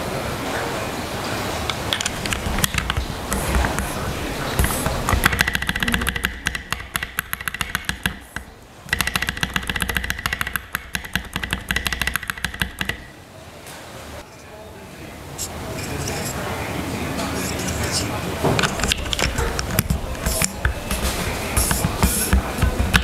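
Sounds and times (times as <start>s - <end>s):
keyboard spacebar clacking: 1.7s - 13.1s, 18.5s - 23.0s.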